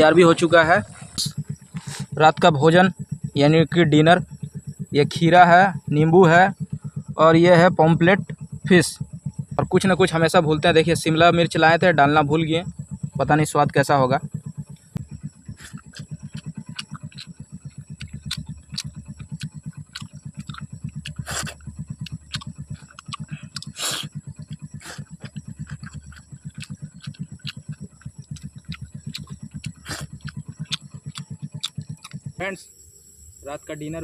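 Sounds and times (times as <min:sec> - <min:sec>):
high-pitched whine: 0:00.0 - 0:34.0
motorcycle engine idling: 0:00.0 - 0:34.0
clicks and smacks of eating: 0:15.5 - 0:17.3, 0:17.9 - 0:32.2.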